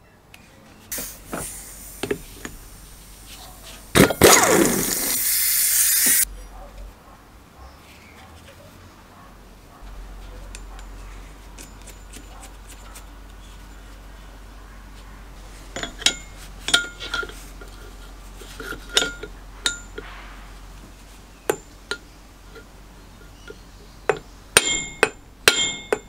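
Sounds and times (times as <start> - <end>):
hand tools clinking on metal: 15.8 - 17.9, 18.6 - 20.1, 21.5 - 26.0.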